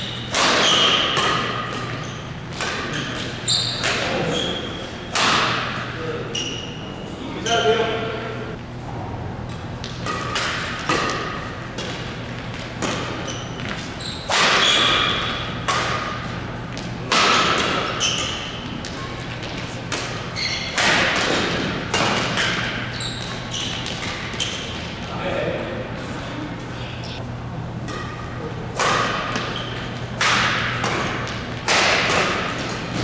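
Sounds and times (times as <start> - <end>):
rackets hitting shuttlecock: 0.2 - 4.3, 5.1 - 5.8, 9.5 - 25.0, 27.8 - 33.0.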